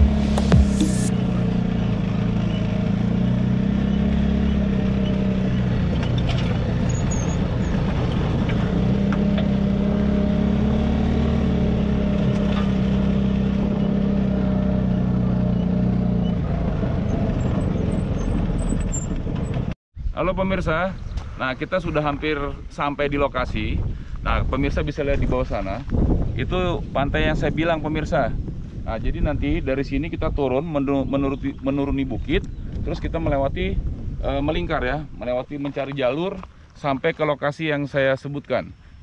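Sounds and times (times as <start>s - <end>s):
tyre and body road noise: 0.0s - 19.8s, 21.0s - 37.7s
vehicle engine running: 0.0s - 19.8s.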